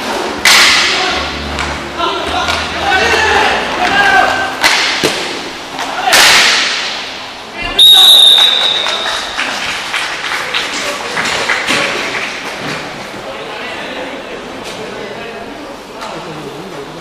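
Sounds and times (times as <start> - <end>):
referee's whistle blast: 7.8 - 9.0.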